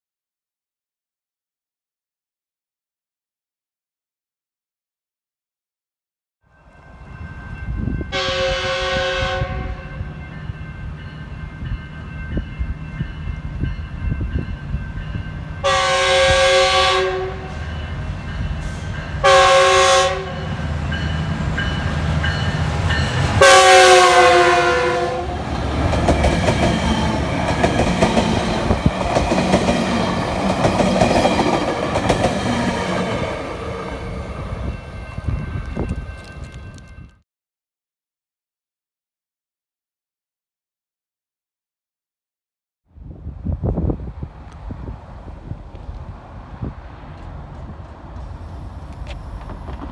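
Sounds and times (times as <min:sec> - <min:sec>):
train rumbling: 0:06.6 - 0:37.2, 0:43.0 - 0:49.9
locomotive air horn blasts: 0:08.1 - 0:10.2, 0:15.6 - 0:17.9, 0:18.6 - 0:20.6, 0:23.4 - 0:25.5.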